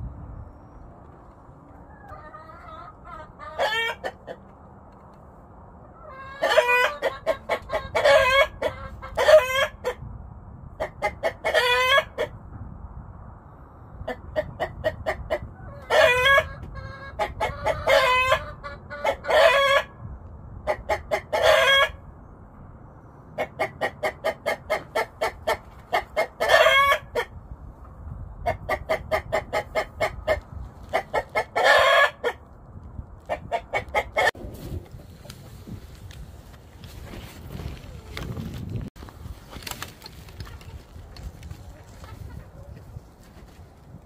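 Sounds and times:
rooster clucking rapidly: 1.8 - 4.5, 6.0 - 10.1, 10.7 - 12.4, 14.0 - 20.0, 20.6 - 22.0, 23.4 - 27.4, 28.3 - 32.4, 33.2 - 34.4, 41.6 - 43.0
rooster squawking calls: 6.0 - 9.9.

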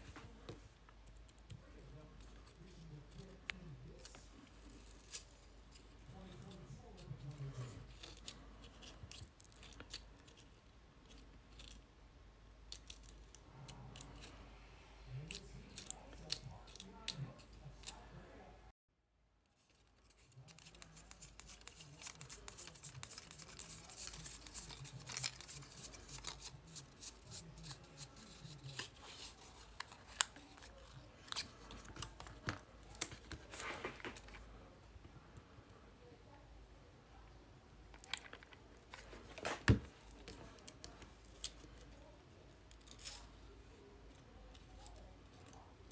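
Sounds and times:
card stock crackling and clicking: 19.7 - 34.4.

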